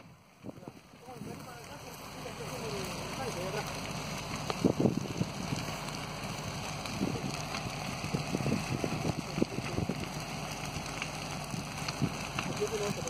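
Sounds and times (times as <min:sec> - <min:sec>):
fire crackling and popping: 0:00.0 - 0:13.0.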